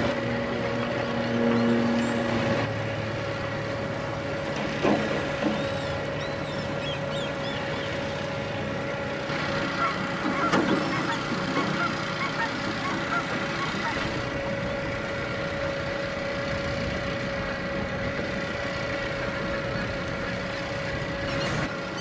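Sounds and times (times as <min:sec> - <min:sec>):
boat engine humming: 0:00.0 - 0:22.0
birds chirping: 0:05.4 - 0:08.5, 0:09.8 - 0:14.1, 0:21.2 - 0:22.0.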